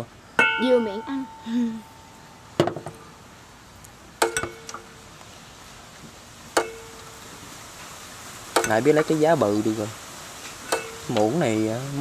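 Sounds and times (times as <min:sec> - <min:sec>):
spoon clinking against bowls: 0:04.2 - 0:04.9, 0:10.7 - 0:11.2.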